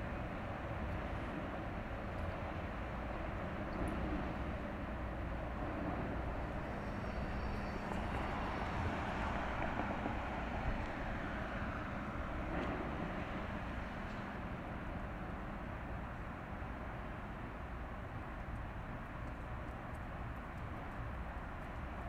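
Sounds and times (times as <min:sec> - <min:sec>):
ship engines droning: 0:00.1 - 0:16.0.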